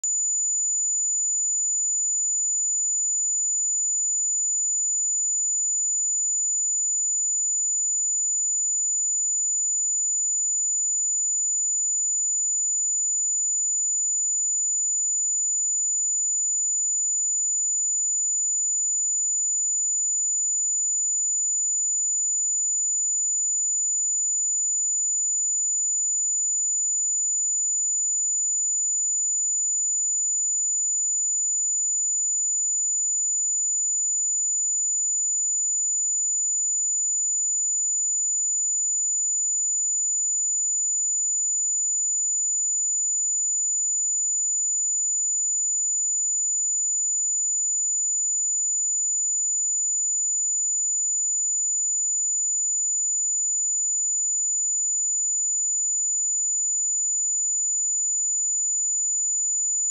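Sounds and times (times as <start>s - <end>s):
high-pitched sine test tone: 0.0s - 4.0s.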